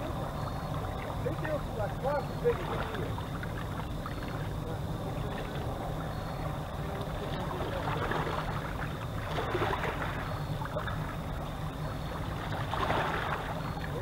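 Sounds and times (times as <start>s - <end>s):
steady low rumble: 0.0s - 14.0s
river water splashing on rocks: 6.8s - 14.0s.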